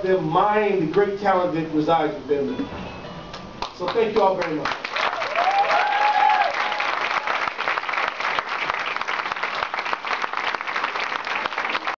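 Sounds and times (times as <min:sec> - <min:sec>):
crowd applauding: 0:03.6 - 0:12.0
person whooping: 0:05.1 - 0:07.3.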